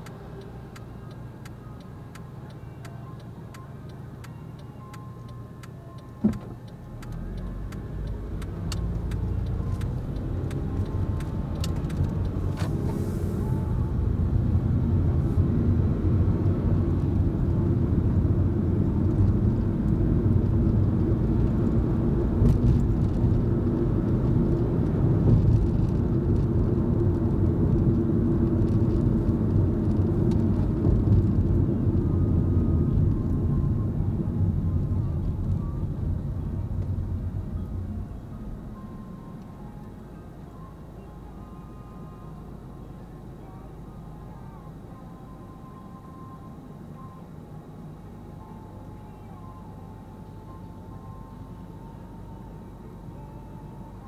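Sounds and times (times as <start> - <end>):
turn signal relay ticking: 0.0 - 12.6
car engine and tyre noise: 0.0 - 54.0.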